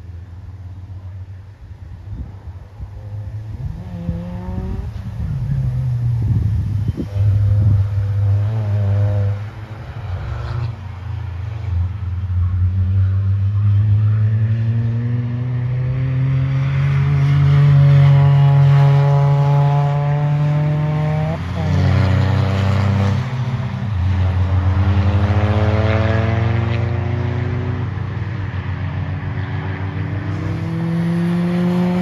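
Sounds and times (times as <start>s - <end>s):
car engine approaching: 0.0s - 32.0s
racing car engines revving: 0.0s - 32.0s.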